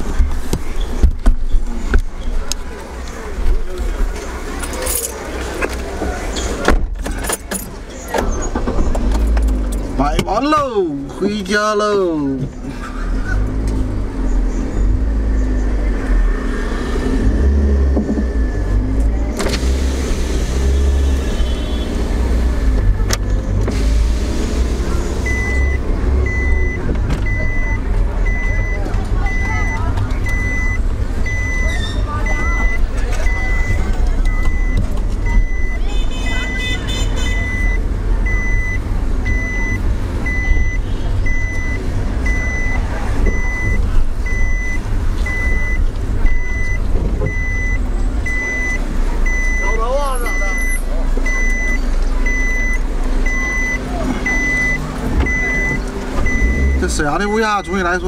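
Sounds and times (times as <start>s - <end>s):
car engine and road rumble: 0.0s - 58.0s
high electronic beep: 25.2s - 35.8s, 37.4s - 58.0s.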